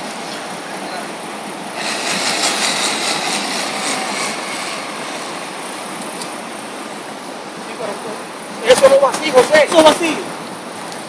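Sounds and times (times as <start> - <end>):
engine running: 1.4 - 7.7.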